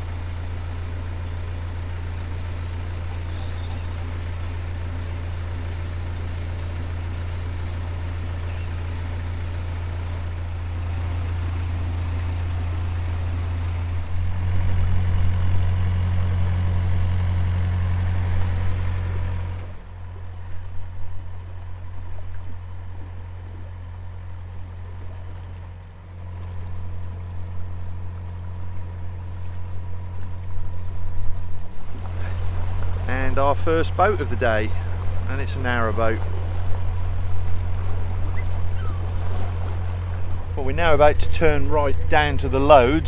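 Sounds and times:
boat engine running: 0:00.0 - 0:43.0.

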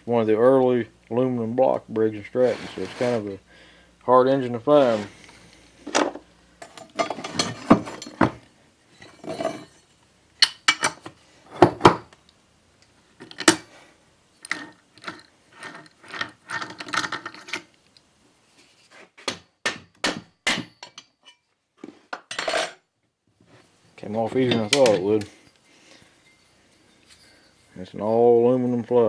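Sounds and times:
metal tools knocking on metal: 0:24.4 - 0:25.1.

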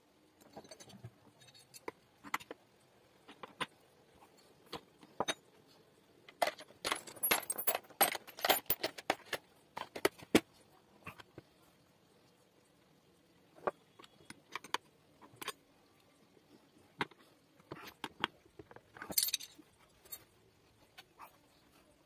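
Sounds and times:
metal fasteners clinking: 0:06.3 - 0:10.2, 0:19.0 - 0:20.3.

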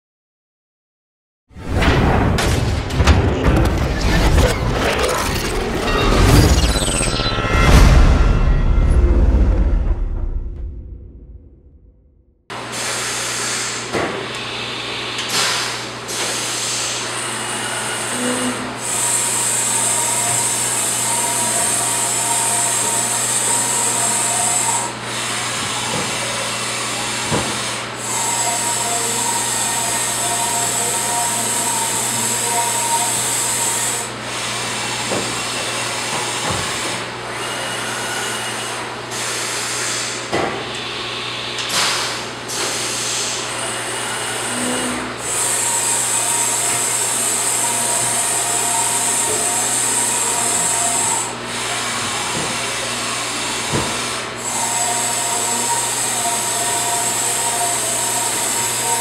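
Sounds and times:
servo whine: 0:01.6 - 0:11.9.

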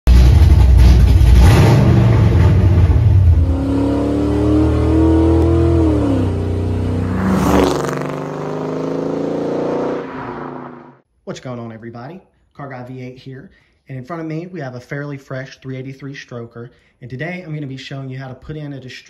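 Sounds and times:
car engine revving: 0:00.1 - 0:11.0
engine hum at speed: 0:00.1 - 0:11.0.

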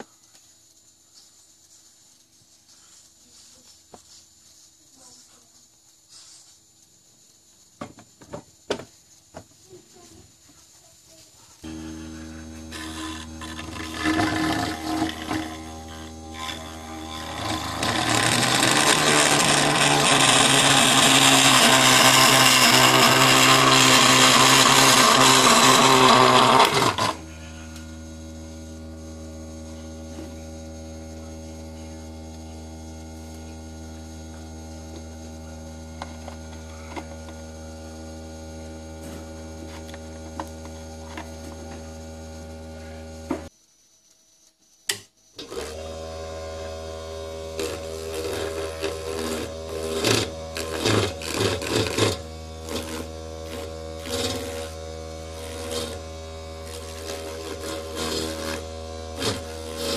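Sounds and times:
cutter cutting plastic: 0:11.6 - 0:43.5, 0:45.4 - 0:59.9
motor hum: 0:11.6 - 0:43.5, 0:45.4 - 0:59.9.

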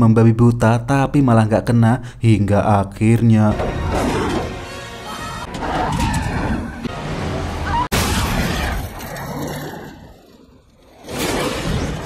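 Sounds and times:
action film music: 0:03.4 - 0:08.9
crashing and booming effects: 0:03.5 - 0:09.2, 0:10.9 - 0:12.0.

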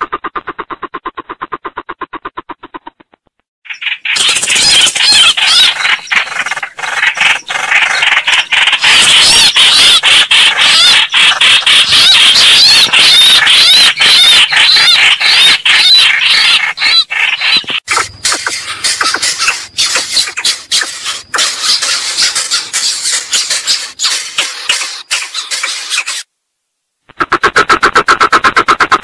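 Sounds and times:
high-pitched bird calls: 0:03.7 - 0:26.3.

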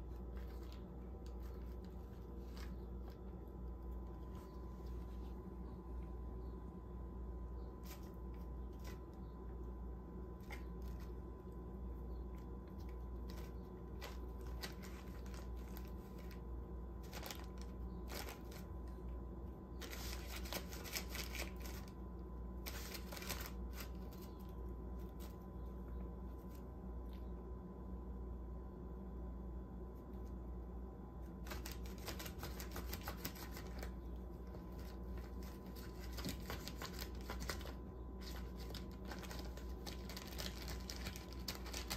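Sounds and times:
steady low hum: 0:00.0 - 0:41.9
plastic wrap crinkling: 0:12.8 - 0:18.8, 0:19.8 - 0:21.9, 0:34.5 - 0:41.9.

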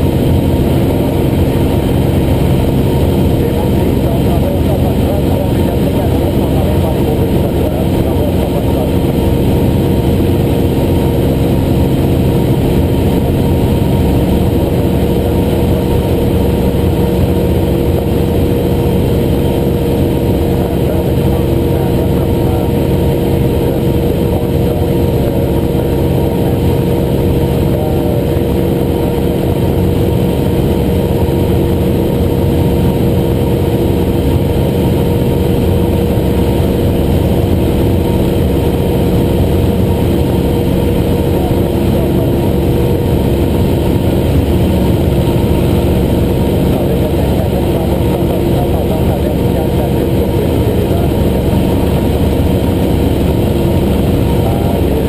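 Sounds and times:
airplane engine and propeller droning: 0:00.0 - 0:55.0.

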